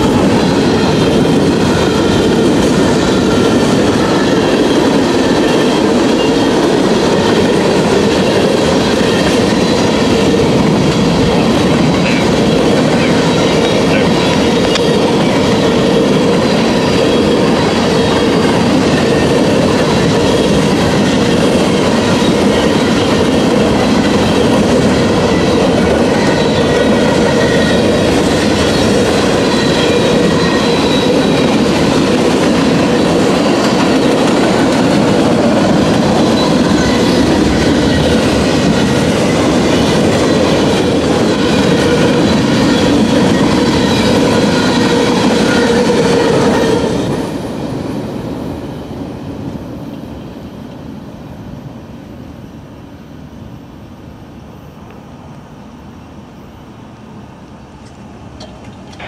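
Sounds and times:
freight train rumbling: 0.0 - 59.0
wheels clacking over rail joints: 57.8 - 59.0.

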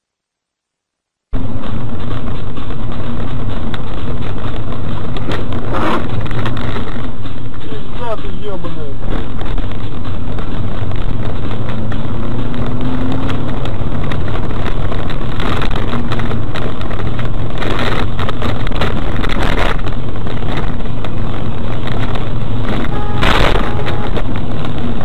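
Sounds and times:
engine and road rumble: 1.2 - 25.0
rushes of noise: 1.4 - 25.0
wind on microphone: 9.1 - 25.0.

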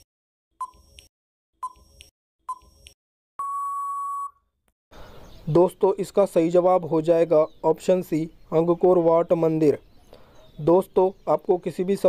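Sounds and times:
long steady beep: 3.4 - 4.4.

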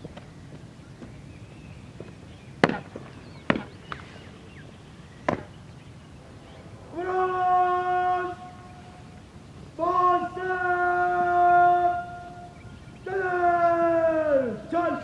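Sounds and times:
drill command shouted: 6.9 - 8.6, 9.8 - 12.4, 13.0 - 15.0.

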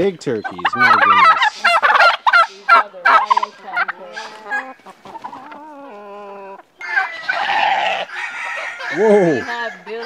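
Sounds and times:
fowl calling: 0.0 - 10.0
noisy farmyard din: 0.0 - 10.0.

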